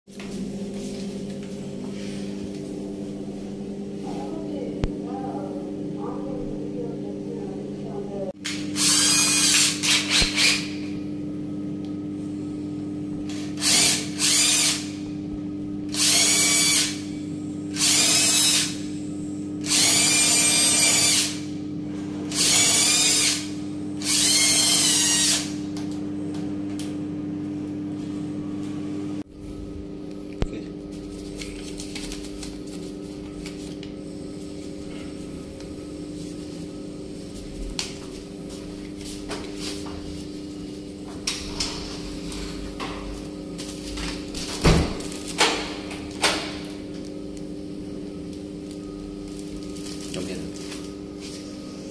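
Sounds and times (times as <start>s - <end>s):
steady hum: 0.1s - 51.9s
cordless drill boring into wood: 8.8s - 10.7s, 13.6s - 14.9s, 15.9s - 17.1s, 17.7s - 18.8s, 19.6s - 21.4s, 22.3s - 25.5s.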